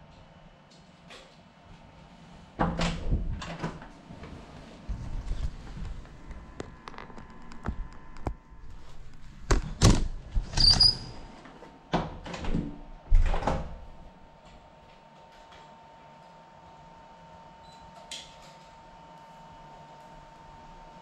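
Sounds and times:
door squeak: 10.4s - 11.4s.

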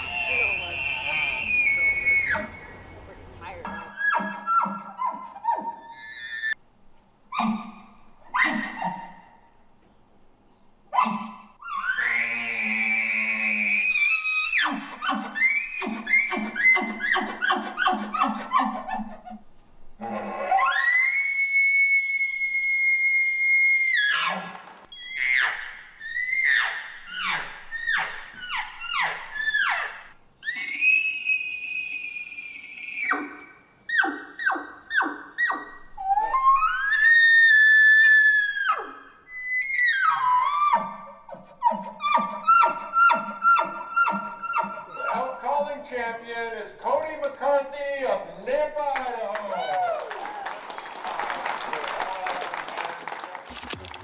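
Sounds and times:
elk call whistle: 0.0s - 2.8s.

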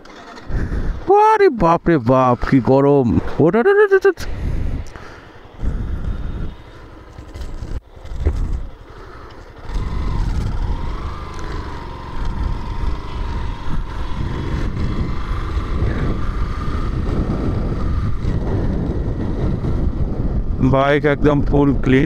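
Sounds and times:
wind rumble on microphone: 4.3s - 5.0s, 5.6s - 8.8s, 9.7s - 11.2s, 11.9s - 22.0s
motorcycle engine running: 4.3s - 22.0s.

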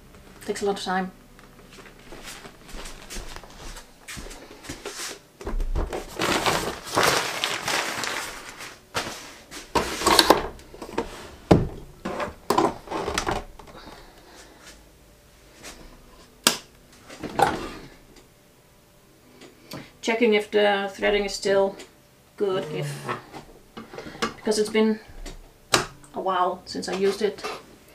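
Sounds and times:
plastic bag rustling: 1.6s - 14.0s.

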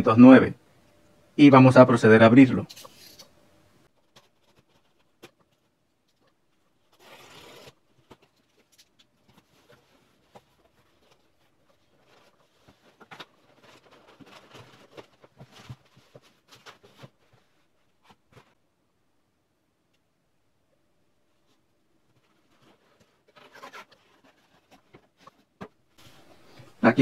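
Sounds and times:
cardboard being handled: 4.0s - 18.6s, 22.1s - 26.6s.

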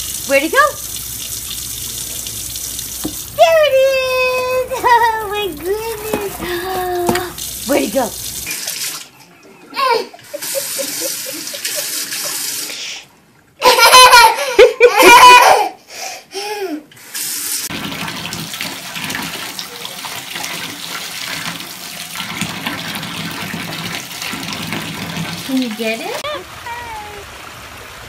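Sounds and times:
tap water running into sink: 0.0s - 9.0s, 17.7s - 26.4s
bathtub spout running: 0.0s - 9.1s, 17.7s - 28.0s
baby splashing water: 0.0s - 10.0s
baby laughing: 3.8s - 7.4s, 9.5s - 12.6s, 13.6s - 15.7s.

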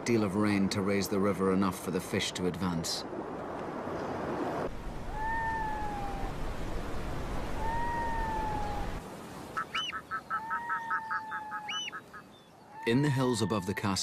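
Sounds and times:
low rush of water: 0.0s - 14.0s
diver bird wailing: 5.1s - 6.4s, 7.5s - 9.0s, 9.6s - 14.0s
higher bird yelps: 5.1s - 6.4s, 7.4s - 14.0s
rapid bird cackle: 7.7s - 14.0s.

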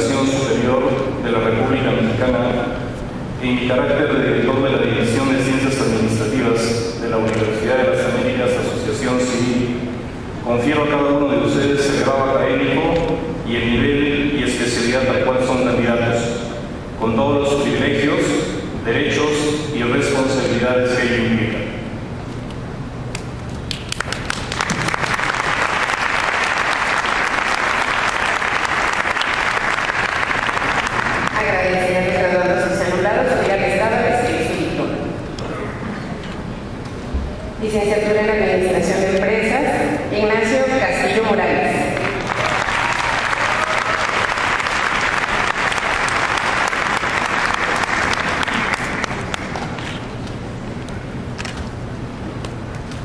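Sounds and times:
audience applauding: 23.6s - 31.6s, 41.9s - 50.2s.

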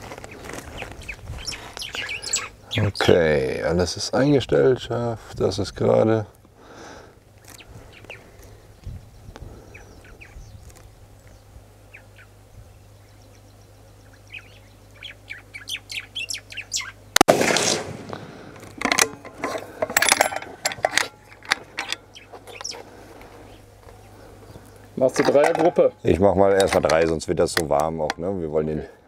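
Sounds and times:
birds chirping: 0.0s - 17.2s, 18.2s - 29.0s
rifle shot: 17.2s - 18.5s.

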